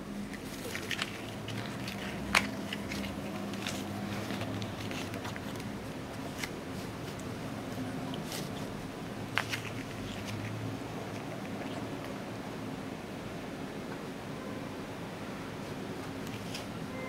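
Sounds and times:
small clicks and rustles: 0.2s - 12.2s, 16.0s - 16.8s.

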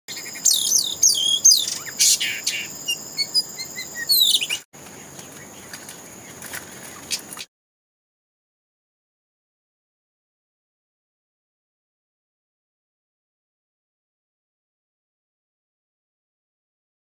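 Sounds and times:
magpie-robin singing: 0.1s - 4.7s.

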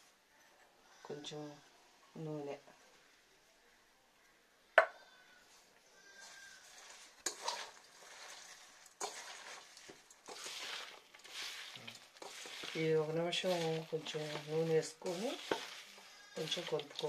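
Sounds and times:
leaves rustling in a bowl: 6.1s - 17.0s.

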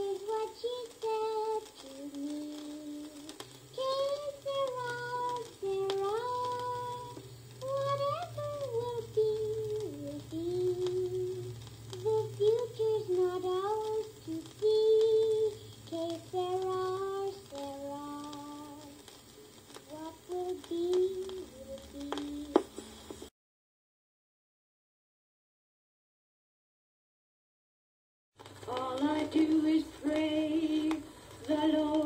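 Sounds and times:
child singing: 0.0s - 19.0s, 19.8s - 22.8s, 28.7s - 32.0s
record ticks and crackle: 0.0s - 23.3s, 28.4s - 32.0s.

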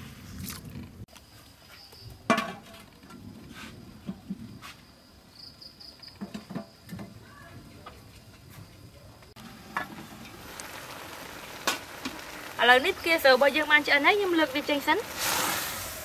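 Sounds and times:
high insect trill: 9.4s - 16.0s.

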